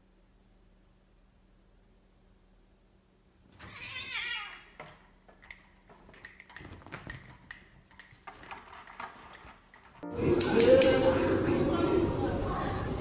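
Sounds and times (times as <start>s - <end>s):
cat yowling: 3.6s - 4.7s.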